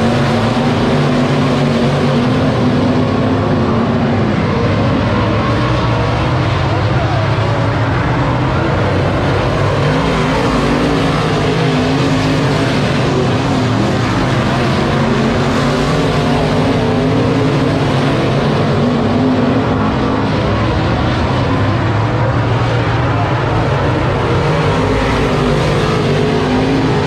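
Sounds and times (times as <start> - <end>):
race car engines revving: 0.0 - 27.0.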